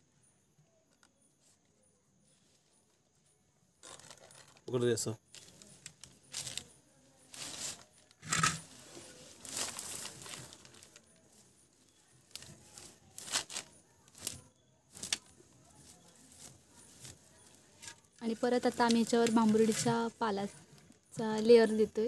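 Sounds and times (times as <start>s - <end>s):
leaves crinkling and rustling: 5.3s - 18.0s.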